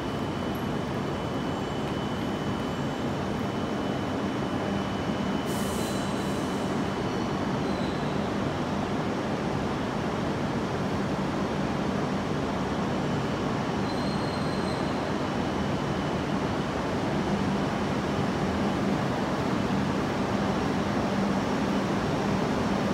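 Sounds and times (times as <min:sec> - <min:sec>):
train running noise with hum: 0:00.0 - 0:22.9
faint high squeal: 0:04.7 - 0:08.4, 0:13.8 - 0:15.1.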